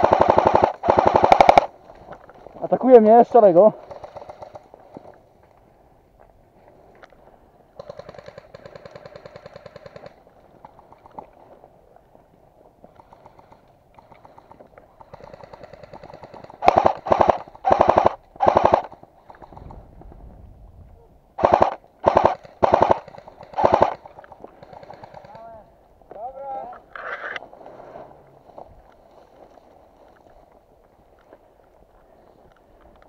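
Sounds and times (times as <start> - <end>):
airsoft guns firing bursts: 0.0 - 1.8, 2.8 - 5.1, 7.8 - 11.0, 13.0 - 19.9, 21.4 - 25.6.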